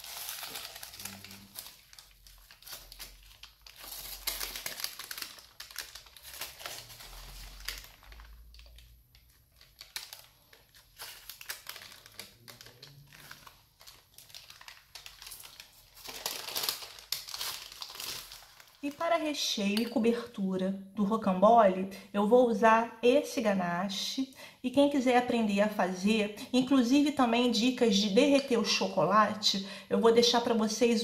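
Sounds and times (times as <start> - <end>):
parchment paper peeling and crinkling: 0.0 - 19.0.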